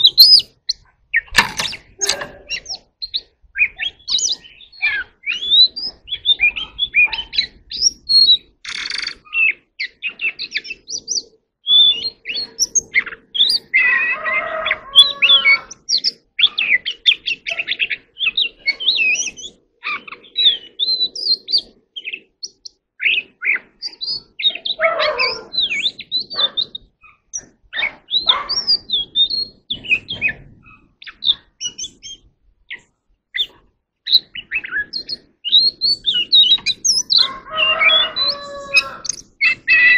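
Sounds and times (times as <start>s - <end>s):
harsh raspy bird notes: 0.0s - 2.9s, 12.2s - 20.8s, 23.1s - 30.1s, 34.2s - 39.9s
bird singing whistled notes: 0.0s - 32.8s, 33.4s - 39.9s.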